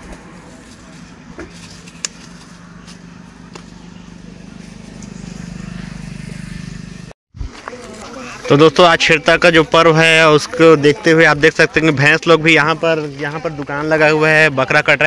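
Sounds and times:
motorcycle engine idling: 1.6 - 7.1.

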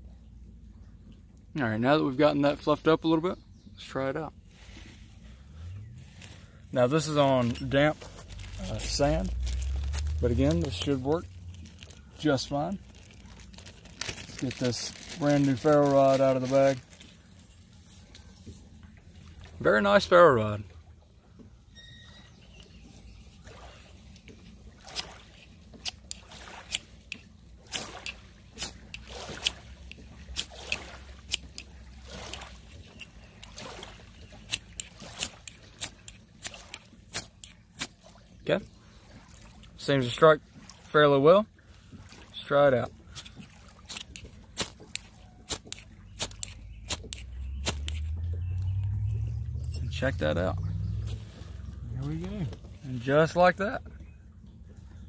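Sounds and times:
low rumble: 4.6 - 15.2, 46.7 - 53.0.

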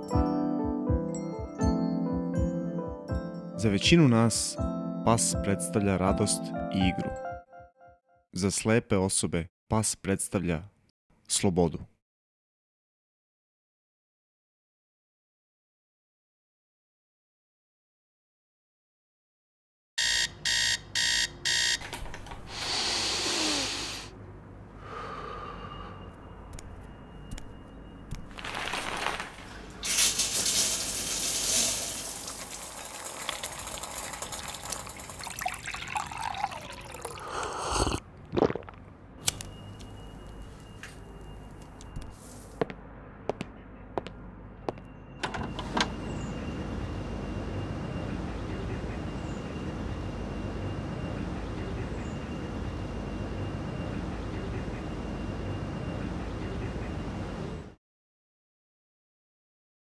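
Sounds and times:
alarm clock beeping: 20.0 - 21.9
water running and splashing: 30.1 - 37.3.

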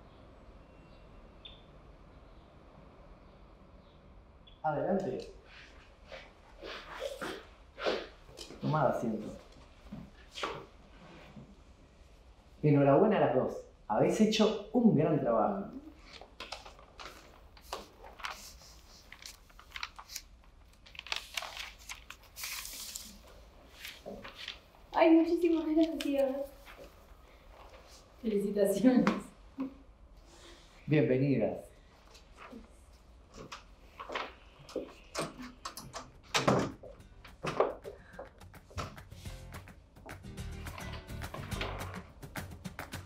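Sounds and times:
paper rustling and crinkling: 16.0 - 24.8, 25.4 - 28.0, 32.1 - 35.0
door opening and shutting: 35.1 - 37.8, 41.4 - 42.0
sharp knocks and clatters: 35.2 - 43.0.

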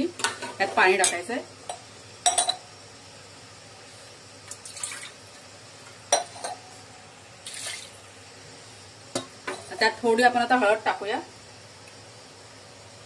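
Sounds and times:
water splashing into a pot: 4.4 - 5.5, 7.4 - 8.0.

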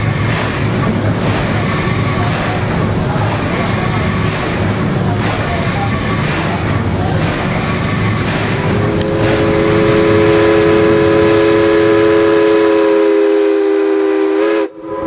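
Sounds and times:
machinery rumble and hiss: 0.0 - 14.6
steam whistle blast: 8.9 - 15.0.

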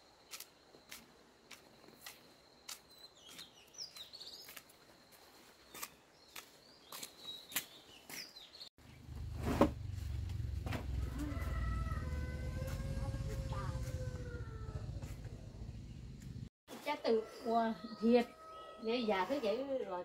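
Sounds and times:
small birds chirping: 2.0 - 9.1
low steady rumble: 9.0 - 16.5.

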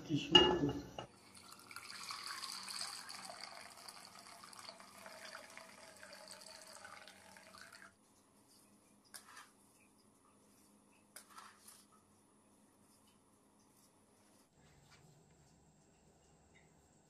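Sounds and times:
milk pouring into metal pot: 1.0 - 8.0.

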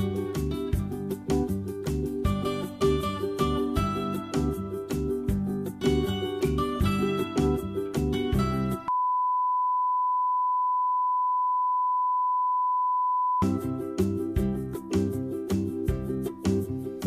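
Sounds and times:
plucked-string background music: 0.0 - 8.9, 13.4 - 17.0.

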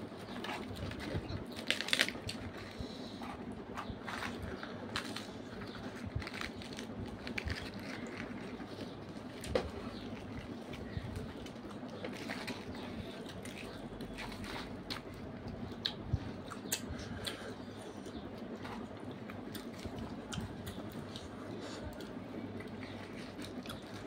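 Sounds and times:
people chewing: 0.1 - 24.0
fried bread tearing: 0.5 - 2.7, 4.0 - 15.3.

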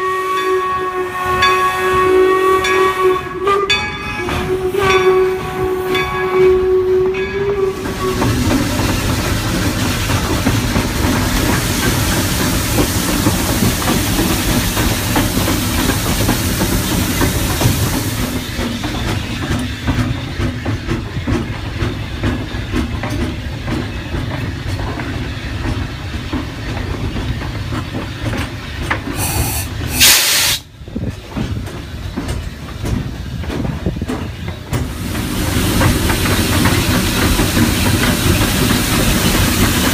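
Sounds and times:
steam locomotive whistle: 0.0 - 8.8, 29.2 - 30.7
low locomotive rumble: 0.0 - 39.9
steam hissing: 7.7 - 19.4, 29.1 - 30.7, 34.8 - 39.9
loud blast of steam: 14.0 - 18.6, 29.2 - 30.7, 34.9 - 39.9.

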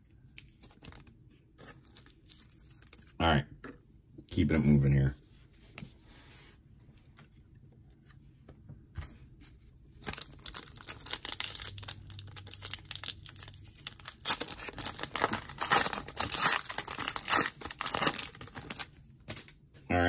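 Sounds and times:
foil wrapper crinkling: 10.0 - 18.9.

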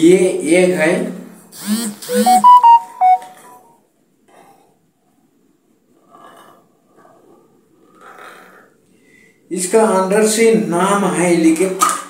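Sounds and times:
breaths: 8.8 - 9.5.

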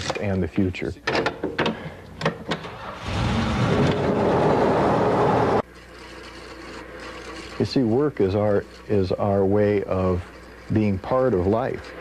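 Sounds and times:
machine humming: 3.1 - 12.0.

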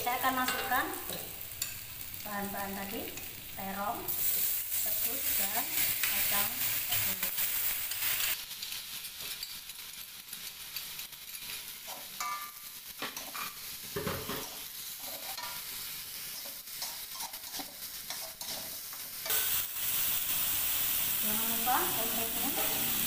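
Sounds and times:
vegetables sizzling in hot oil: 0.0 - 23.0
metal spatula scraping wok: 14.2 - 19.6, 21.7 - 23.0.

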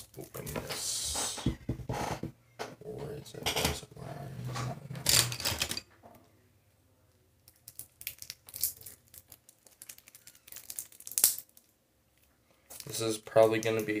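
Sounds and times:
plastic crinkles and clicks: 7.4 - 14.0
plastic wrapping rustling: 7.5 - 13.1.

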